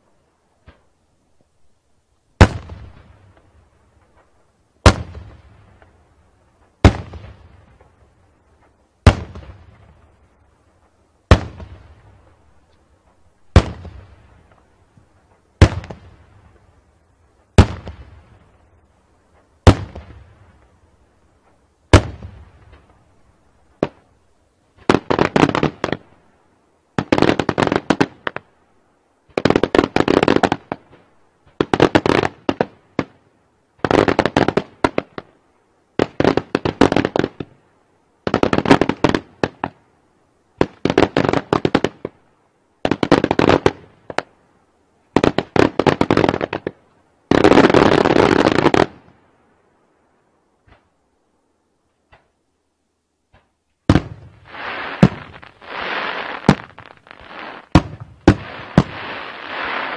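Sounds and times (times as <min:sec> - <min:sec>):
rapid firework crackle volleys: 0:02.4 - 0:16.8, 0:17.4 - 0:24.1, 0:24.7 - 0:26.2, 0:27.0 - 0:28.5, 0:29.2 - 0:33.2, 0:33.8 - 0:35.4, 0:36.0 - 0:37.6, 0:38.2 - 0:39.8, 0:40.6 - 0:44.4, 0:45.0 - 0:49.2, 0:53.3 - 0:59.9
firework bangs echoing: 0:09.0 - 0:10.0, 0:11.3 - 0:11.8, 0:13.5 - 0:14.0, 0:15.6 - 0:16.0, 0:17.6 - 0:18.1, 0:19.6 - 0:20.3, 0:53.9 - 0:59.9.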